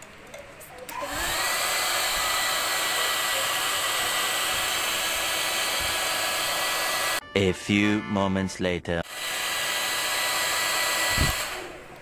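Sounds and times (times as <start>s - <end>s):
hair dryer blowing: 0.9s - 7.2s, 9.1s - 12.0s.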